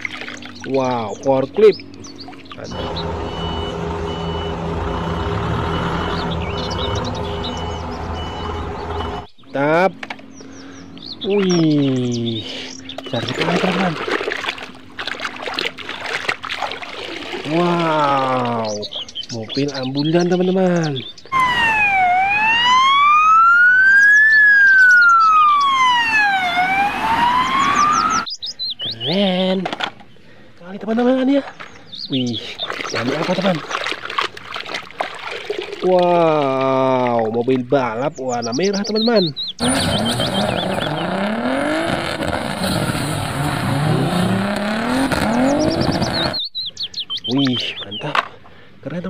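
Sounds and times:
ambulance siren wailing: 2.6s - 9.3s, 21.3s - 28.3s
tyres screeching: 2.6s - 9.3s, 39.6s - 46.4s
car engine revving hard: 2.7s - 9.3s, 39.6s - 46.4s.

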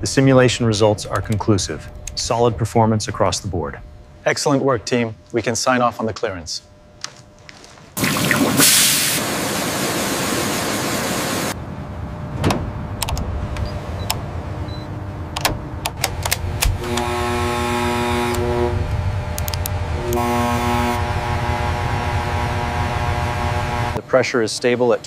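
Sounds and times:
low machinery rumble: 0.0s - 7.3s, 11.5s - 24.1s
steady hiss: 8.0s - 11.6s
electronic multi-pitch tone: 20.0s - 24.0s.

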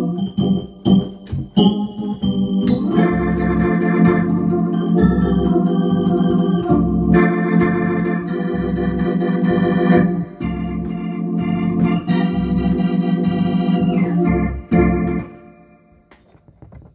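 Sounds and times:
organ playing sustained chords: 0.0s - 16.0s.

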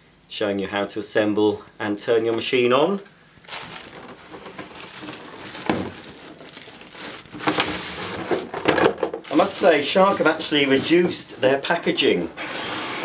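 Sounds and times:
cardboard and plastic rustling: 3.4s - 11.2s.

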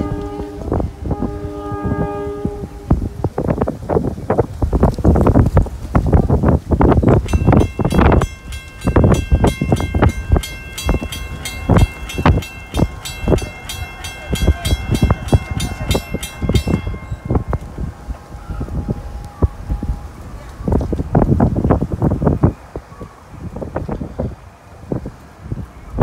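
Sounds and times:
railroad crossing bell ringing: 0.0s - 2.5s, 7.2s - 19.3s
wind buffeting microphone: 0.0s - 26.0s.

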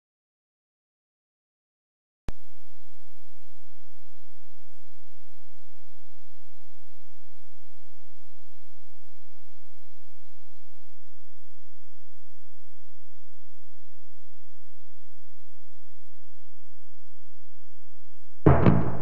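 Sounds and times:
electrical hum: 2.3s - 19.0s
tape playback hiss: 2.3s - 19.0s.

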